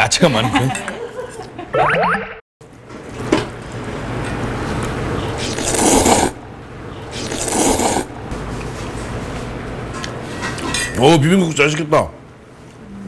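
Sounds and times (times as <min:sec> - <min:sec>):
loud noodle slurping: 0:05.4 - 0:06.4, 0:07.1 - 0:08.1.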